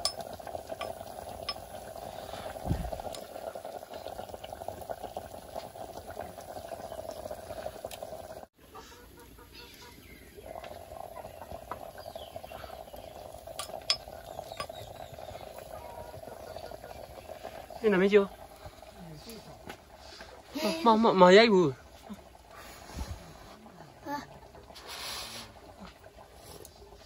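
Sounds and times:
metal spoon stirring: 0.0 - 1.7
curry simmering and bubbling: 0.0 - 8.6, 9.3 - 27.0.

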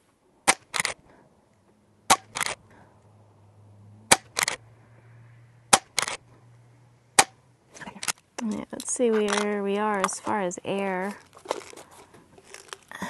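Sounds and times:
air rifle shots: 0.4 - 1.0, 2.1 - 2.6, 4.1 - 4.6, 5.7 - 6.2, 7.2 - 7.4.

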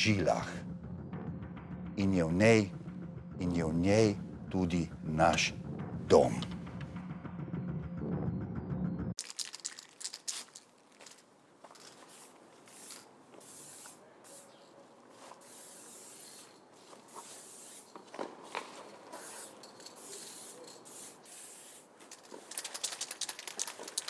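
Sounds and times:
spray paint can hissing: 9.2 - 11.2, 11.8 - 14.6, 15.2 - 24.0.

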